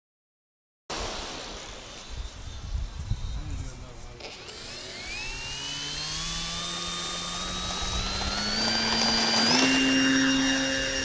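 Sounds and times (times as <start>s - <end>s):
quadcopter motors whining: 4.1s - 11.0s.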